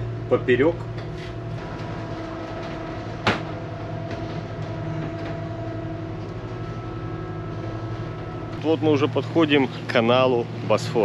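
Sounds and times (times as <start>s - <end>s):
diesel engine drone: 0.0s - 11.0s.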